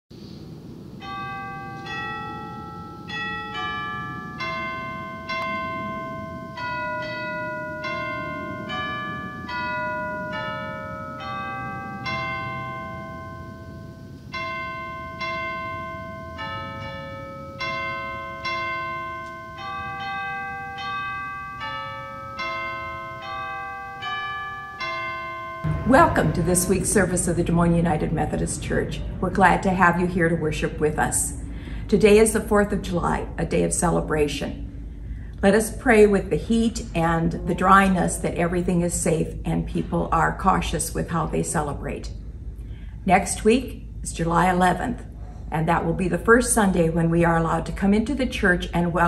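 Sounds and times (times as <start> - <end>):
slow melody of ringing notes: 0.7 - 29.2
low steady background: 25.6 - 49.0.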